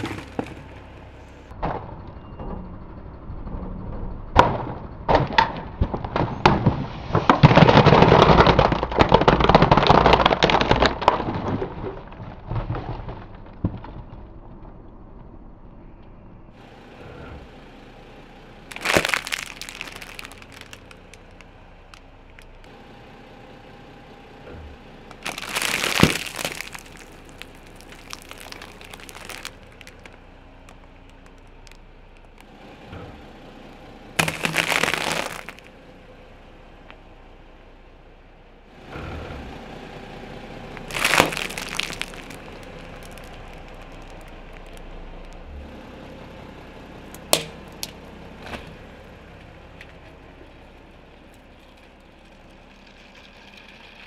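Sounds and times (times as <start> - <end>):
tyre crunching brittle objects: 0.0 - 0.7, 7.3 - 14.0, 18.7 - 22.7, 25.1 - 32.5, 34.2 - 35.7, 40.7 - 45.4, 47.2 - 48.0.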